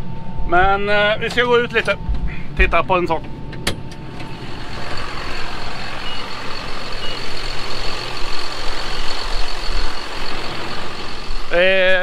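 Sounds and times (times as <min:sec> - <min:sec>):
tractor diesel engine running: 0:03.8 - 0:12.0.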